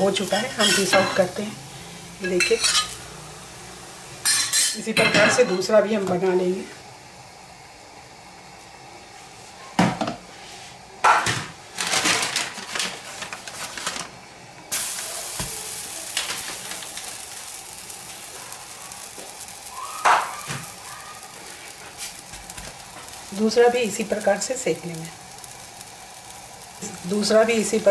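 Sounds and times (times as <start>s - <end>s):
flatbread sizzling on griddle: 0.0s - 27.9s
steel plate and utensils clinking: 2.2s - 3.0s.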